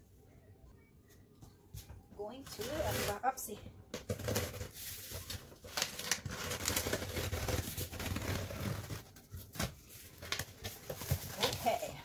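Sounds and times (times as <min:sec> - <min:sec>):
tape tearing: 0:04.0 - 0:11.8.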